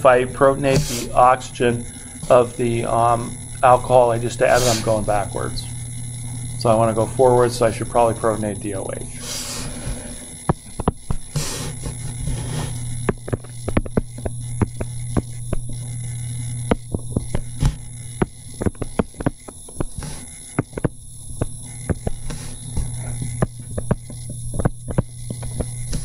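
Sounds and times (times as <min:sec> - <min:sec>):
low hum: 0:00.0 - 0:26.0
stylus tapping on tablet screen: 0:10.5 - 0:11.2.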